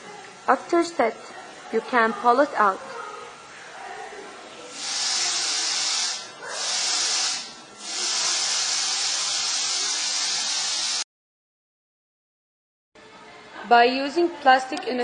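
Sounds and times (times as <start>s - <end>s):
loud steady hiss: 4.7s - 11.0s.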